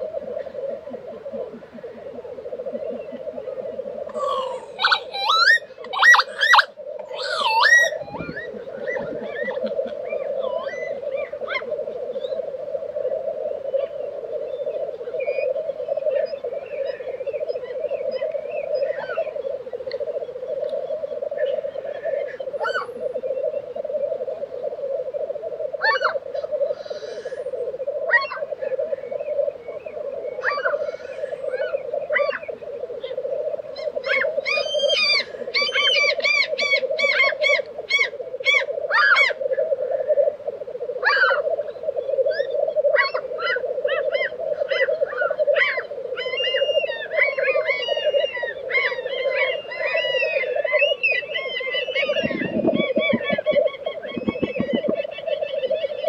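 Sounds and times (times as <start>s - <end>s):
bird repeated rapid calls: 0.0s - 12.4s, 28.1s - 40.2s, 41.0s - 56.0s
other birds calling: 0.0s - 12.5s, 25.8s - 40.3s, 41.0s - 56.0s
grouse bubbling calls: 0.0s - 56.0s
grouse hissing: 0.0s - 56.0s.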